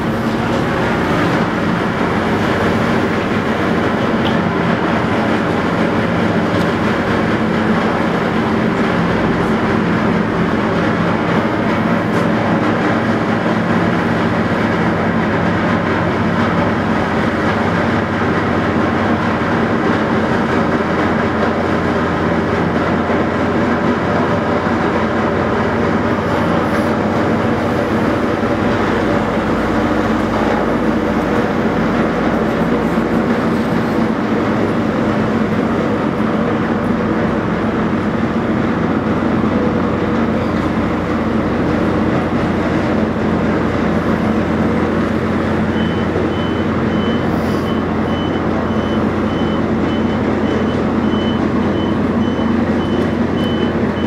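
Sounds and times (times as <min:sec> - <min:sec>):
ferry engines droning: 0:00.0 - 0:54.0.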